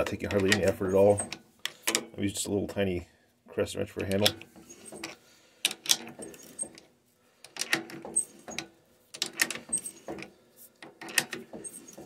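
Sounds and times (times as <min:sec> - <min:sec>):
threading die scraping and clicking: 0:04.0 - 0:12.0.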